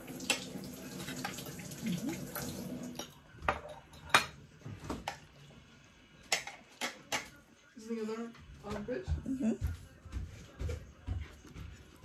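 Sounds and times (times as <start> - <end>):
plates and cutlery clinking: 2.9 - 5.5, 6.2 - 7.4.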